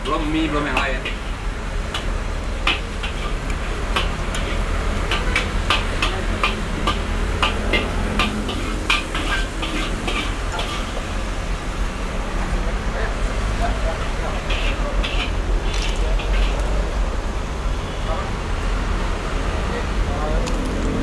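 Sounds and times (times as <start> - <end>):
metal spoon scraping ceramic plate: 7.8 - 11.0, 14.4 - 16.6.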